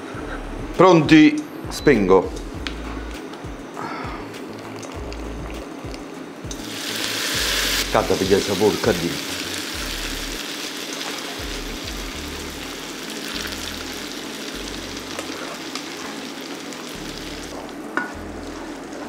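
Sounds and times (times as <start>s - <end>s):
background music: 0.0s - 19.0s
food sizzling in frying pan: 4.4s - 19.0s.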